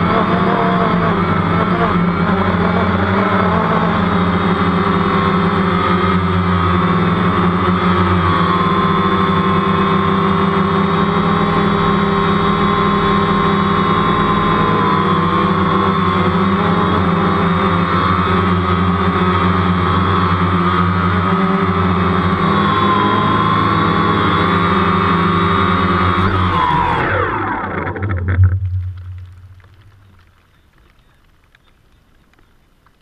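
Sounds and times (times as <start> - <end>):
drone propellers whining: 25.0 - 30.3.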